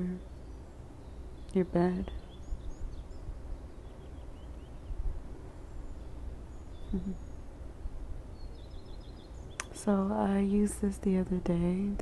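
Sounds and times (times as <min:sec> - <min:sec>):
faint high chirps: 0:00.0 - 0:07.6
steady low rumble: 0:00.0 - 0:12.0
woman murmuring: 0:06.9 - 0:07.2.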